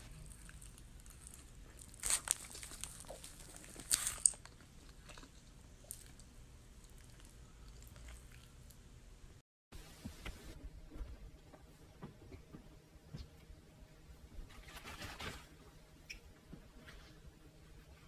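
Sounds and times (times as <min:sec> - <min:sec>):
chewing: 0:00.1 - 0:08.8
biting into burrito: 0:00.2 - 0:08.5.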